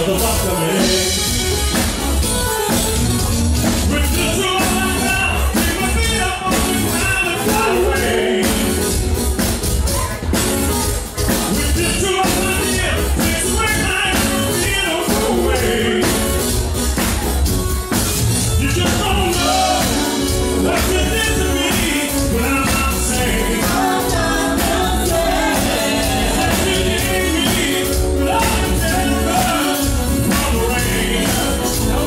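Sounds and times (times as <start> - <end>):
drum kit: 0.0 - 32.0
electric bass: 0.0 - 32.0
hand percussion: 0.0 - 32.0
keyboard: 0.0 - 32.0
lead singer singing: 3.9 - 9.2, 11.2 - 16.7, 18.6 - 32.0.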